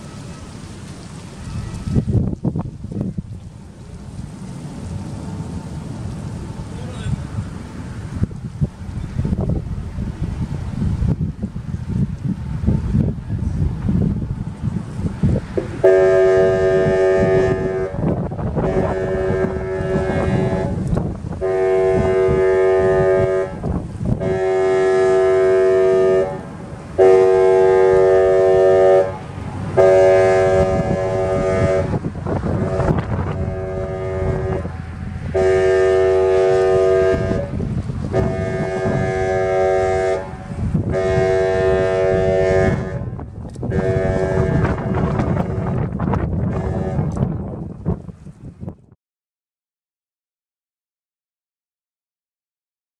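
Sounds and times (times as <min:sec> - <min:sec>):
wind rumble on microphone: 0:00.0 - 0:49.0
electronic siren air horn blasts: 0:15.8 - 0:20.8, 0:21.4 - 0:29.2, 0:29.8 - 0:32.0, 0:32.6 - 0:45.8.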